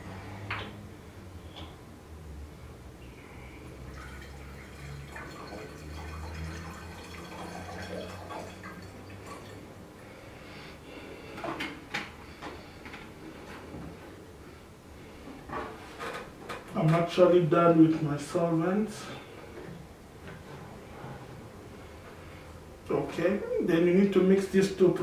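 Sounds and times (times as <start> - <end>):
liquid pouring through funnel: 3.8 - 9.8.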